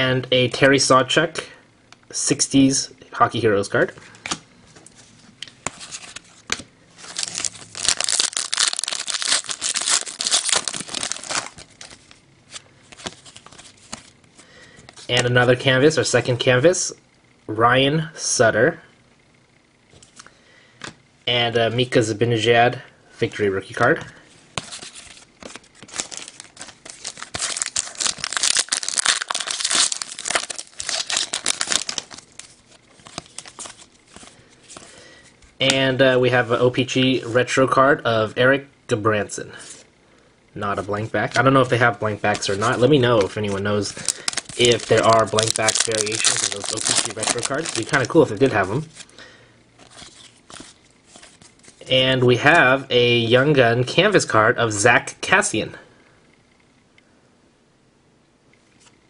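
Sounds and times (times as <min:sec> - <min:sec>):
foil wrapper crinkling: 0:07.0 - 0:14.1, 0:24.7 - 0:34.9, 0:41.2 - 0:49.1.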